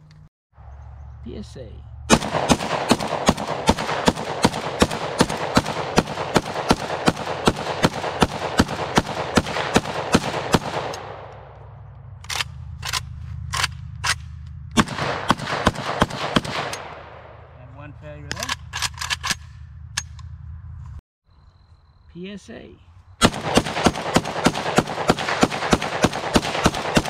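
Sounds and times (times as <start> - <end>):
rifle firing rapid shots: 2.1 - 11.4, 14.8 - 17.4, 23.2 - 27.0.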